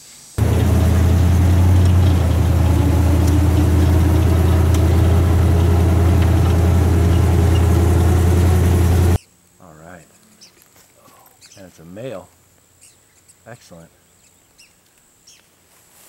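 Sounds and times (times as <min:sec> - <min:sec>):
swamp buggy engine running: 0:00.4 - 0:09.2.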